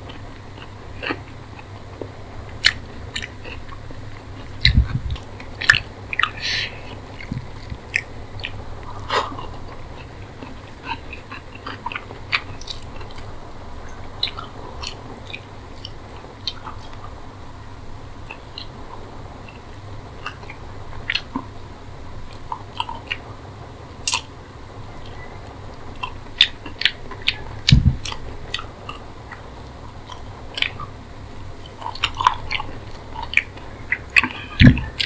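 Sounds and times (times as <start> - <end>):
chewing and biting: 0.0 - 17.1, 22.3 - 23.2, 26.0 - 31.0, 31.6 - 35.0
faint low hum: 0.0 - 35.0.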